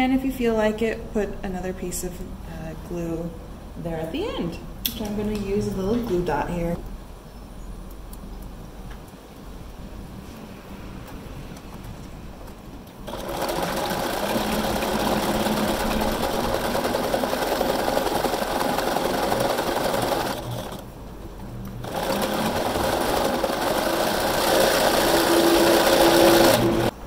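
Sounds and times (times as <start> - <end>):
sewing machine stitching: 13.0 - 20.9, 21.8 - 26.9.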